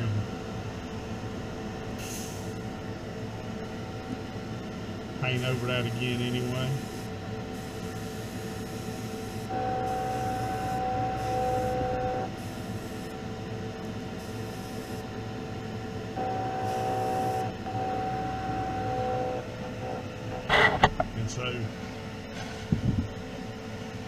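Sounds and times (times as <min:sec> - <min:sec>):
exhaust fan running: 0:00.0 - 0:24.0
airbrush spraying paint: 0:02.0 - 0:02.5, 0:06.8 - 0:11.8, 0:12.4 - 0:13.1, 0:16.6 - 0:17.5.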